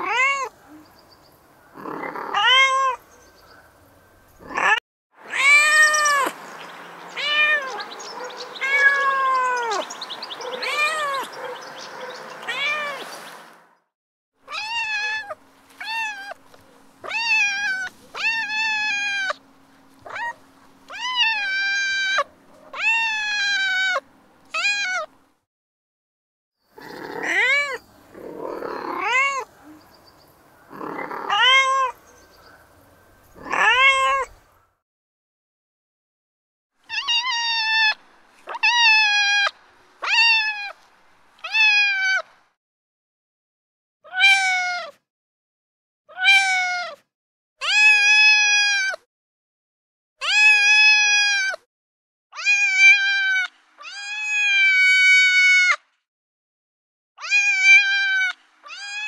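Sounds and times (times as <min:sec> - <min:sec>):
recorded cat meows: 0:00.0 - 0:00.5, 0:01.8 - 0:03.0, 0:04.4 - 0:06.3, 0:07.2 - 0:07.9, 0:08.6 - 0:09.8, 0:10.6 - 0:11.3, 0:12.4 - 0:13.0, 0:14.5 - 0:16.4, 0:17.0 - 0:19.4, 0:20.0 - 0:24.0, 0:24.6 - 0:25.1, 0:26.8 - 0:29.8, 0:30.7 - 0:32.0, 0:33.4 - 0:34.3, 0:36.9 - 0:40.8, 0:41.4 - 0:42.3, 0:44.1 - 0:45.0, 0:46.1 - 0:49.1, 0:50.2 - 0:51.7, 0:52.3 - 0:55.8, 0:57.2 - 0:59.0.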